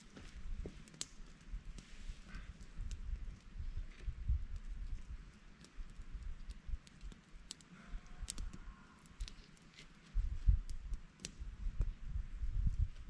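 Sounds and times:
campfire crackling and popping: 0.0 - 13.0
low rumble in gusts: 1.5 - 6.9, 10.1 - 13.0.

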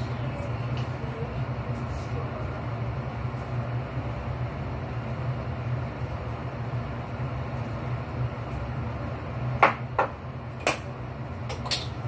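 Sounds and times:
extractor fan hum: 0.0 - 12.0
dishes knocking and clinking: 9.6 - 10.9.

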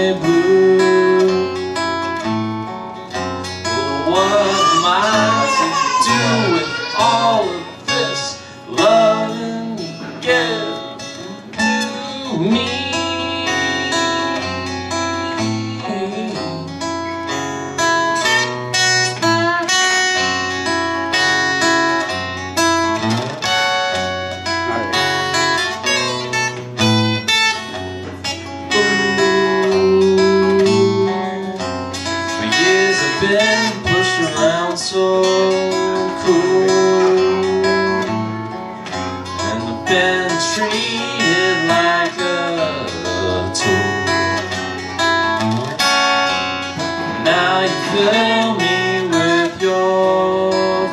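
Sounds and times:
man singing: 0.0 - 2.0, 3.6 - 17.2, 27.2 - 38.5, 39.2 - 45.5, 46.7 - 50.9
acoustic guitar strummed: 0.0 - 50.9.

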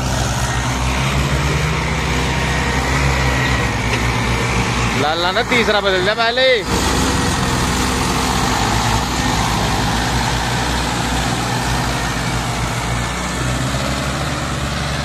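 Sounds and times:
tractor diesel engines under load: 0.0 - 15.0.

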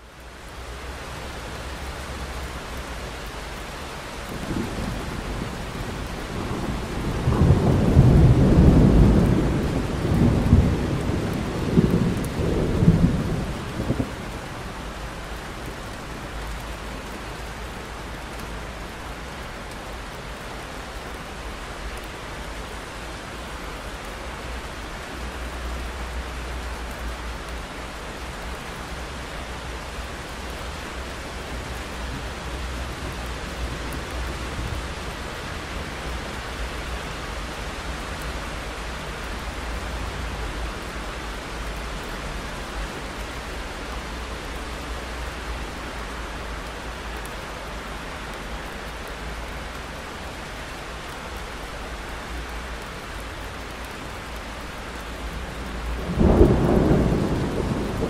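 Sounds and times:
steady rain: 0.0 - 58.0
thunder rumbling: 4.3 - 14.4, 55.1 - 58.0.

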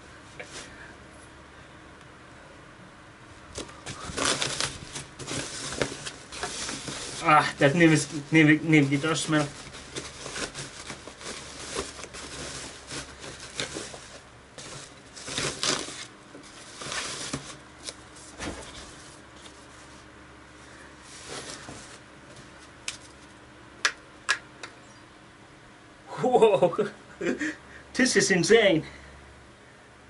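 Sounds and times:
wrap rustling and crinkling: 3.6 - 20.1, 21.0 - 23.4.

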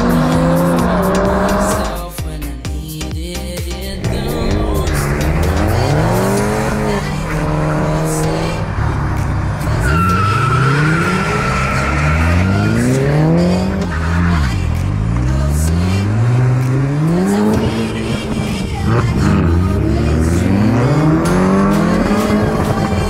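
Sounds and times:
cars accelerating hard: 0.0 - 2.0, 3.9 - 23.0
high steady squeal: 9.6 - 14.1.

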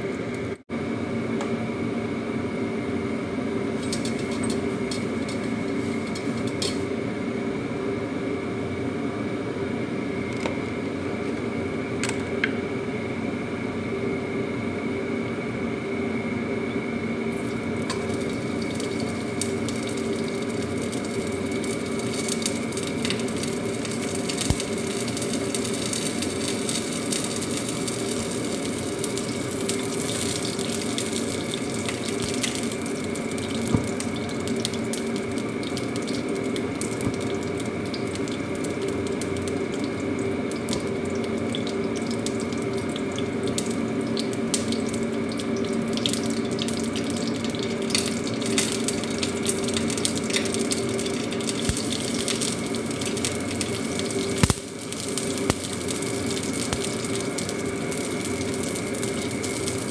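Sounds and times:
droning hum: 0.0 - 59.9
fat sizzling in a wok: 3.7 - 7.0, 17.3 - 59.9.

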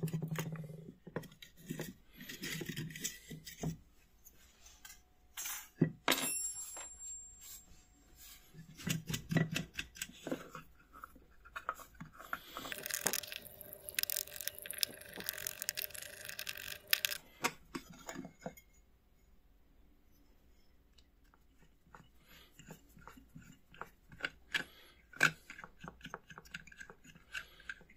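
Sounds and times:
scraping and rubbing: 8.2 - 17.4.

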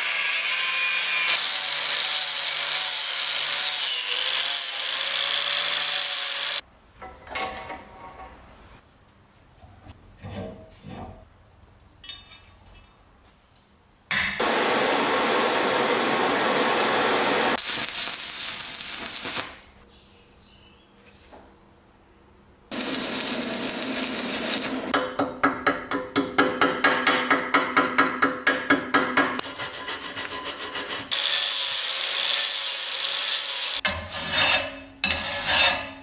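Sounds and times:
file scraping rusty metal: 29.4 - 36.0.

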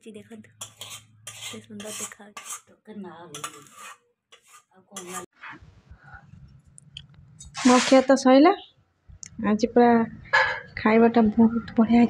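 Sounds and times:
metal spoon scraping steel bowl: 0.5 - 5.3, 7.5 - 8.1.

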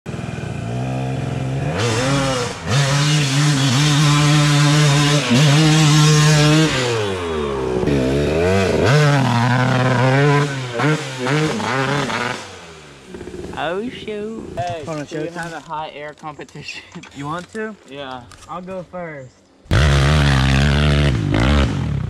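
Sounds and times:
vehicle engine revving hard: 0.1 - 13.8, 19.7 - 22.0.

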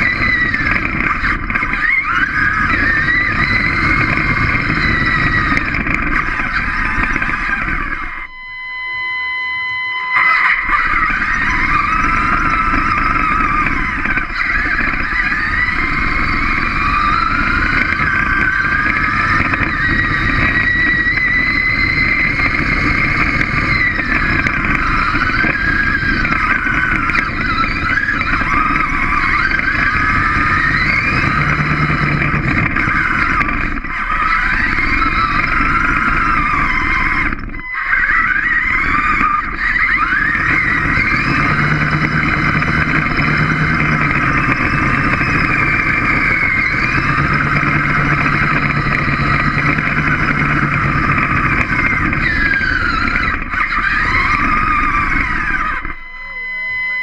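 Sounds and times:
steady low rumble: 0.0 - 34.4
robot motors and gears whining: 0.0 - 57.0.

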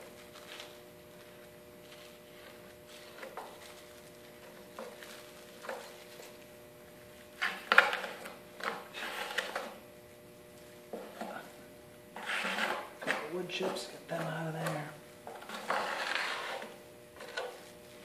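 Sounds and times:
faint steady hum: 0.0 - 18.0
wood spreader scraping on plywood: 8.7 - 9.8, 12.2 - 13.9, 15.3 - 17.7.

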